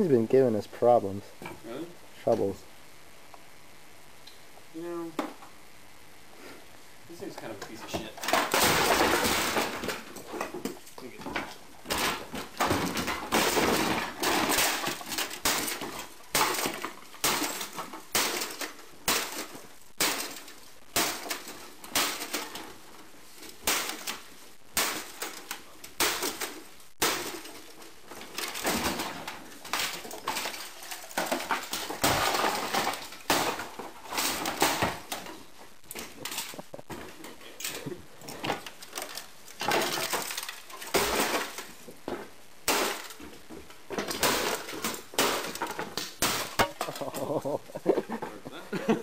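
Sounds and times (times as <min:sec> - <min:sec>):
bat smashing plastic machine: 0:08.1 - 0:10.8, 0:11.8 - 0:22.8, 0:23.5 - 0:35.3, 0:38.5 - 0:41.8, 0:42.6 - 0:43.2, 0:43.9 - 0:47.1.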